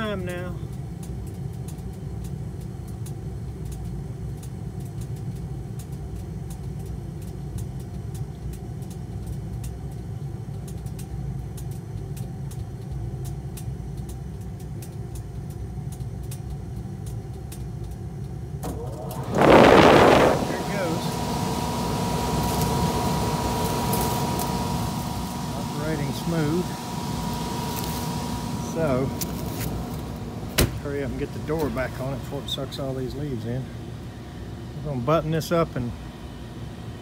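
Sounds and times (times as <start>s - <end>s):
heating unit hum and rumble: 0.0s - 37.0s.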